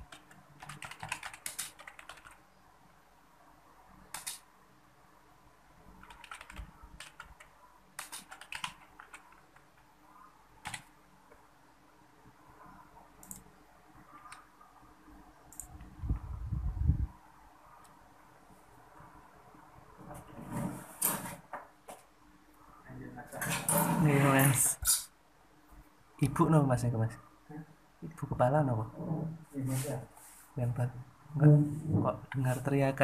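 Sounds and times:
keyboard keys clicking: 0:00.0 - 0:02.4, 0:04.1 - 0:04.4, 0:06.0 - 0:09.9, 0:13.2 - 0:13.5.

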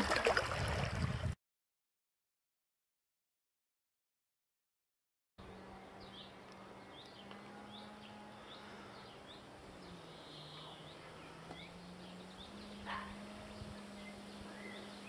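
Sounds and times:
small birds chirping: 0:05.4 - 0:15.0.

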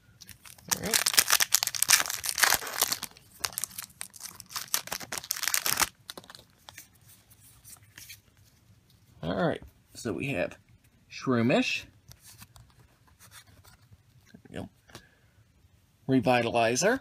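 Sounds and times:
foil wrapper crinkling and tearing: 0:00.2 - 0:06.8
cards rustling: 0:00.2 - 0:08.3.

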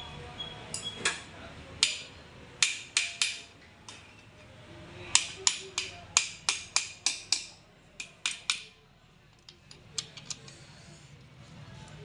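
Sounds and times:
metal tool tapping metal: 0:01.8 - 0:04.0, 0:05.1 - 0:08.7.

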